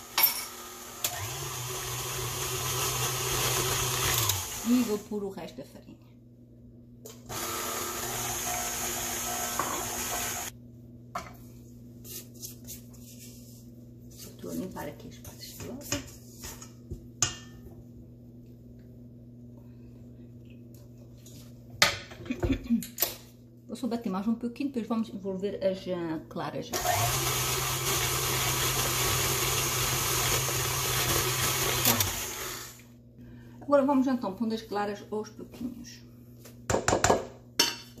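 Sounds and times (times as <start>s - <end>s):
stand mixer motor whine: 0.0s - 4.8s, 7.3s - 10.5s, 26.8s - 32.8s.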